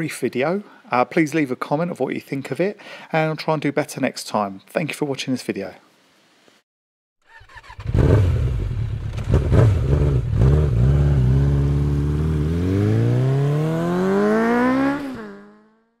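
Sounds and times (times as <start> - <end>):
motorcycle engine revving: 7.3 - 16.0.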